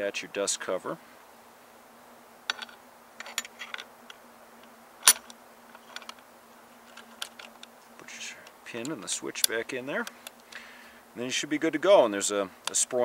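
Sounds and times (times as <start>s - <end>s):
metallic clicks and scrapes: 2.5s - 4.2s, 5.0s - 6.2s, 6.8s - 7.7s
sharp loud metal click: 5.0s - 5.4s.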